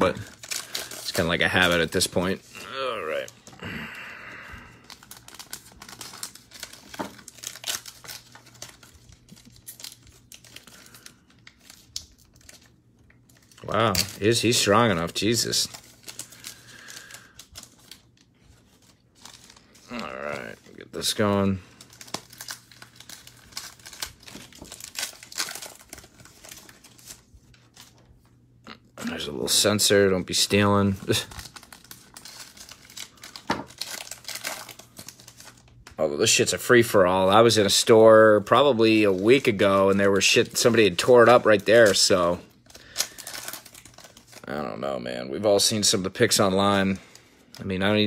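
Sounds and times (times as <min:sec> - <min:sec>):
foil wrapper crinkling and tearing: 0:00.0 - 0:48.0.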